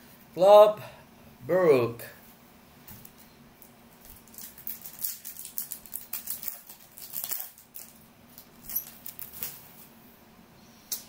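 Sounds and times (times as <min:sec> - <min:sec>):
foil wrapper crinkling: 0:04.0 - 0:09.7.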